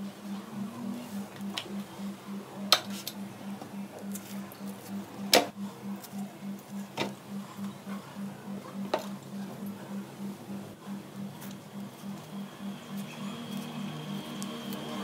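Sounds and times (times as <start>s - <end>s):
bananas being peeled: 13.0s - 15.0s.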